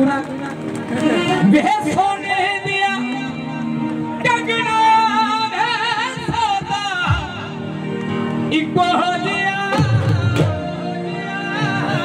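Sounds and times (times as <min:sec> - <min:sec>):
instrumental backing: 0:00.0 - 0:12.0.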